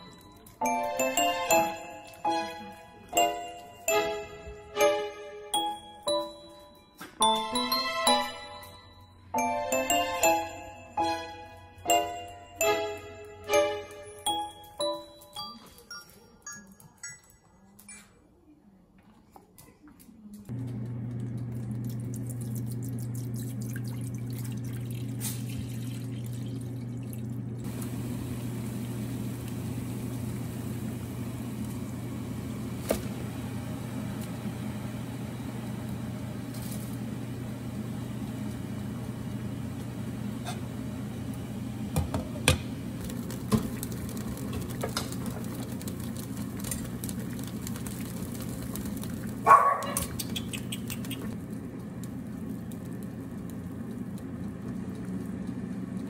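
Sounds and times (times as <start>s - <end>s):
water pouring into metal pot: 21.8s - 29.0s, 43.0s - 49.4s.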